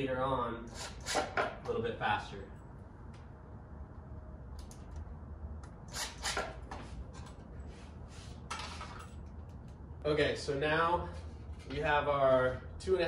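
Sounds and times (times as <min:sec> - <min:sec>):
low steady hum: 0:00.0 - 0:13.0
screw and drill clicking: 0:05.9 - 0:06.5.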